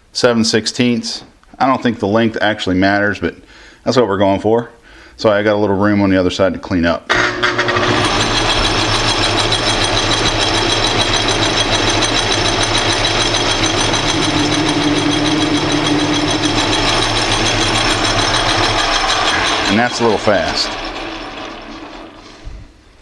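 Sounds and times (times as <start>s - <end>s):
metal lathe whine: 7.1s - 22.8s.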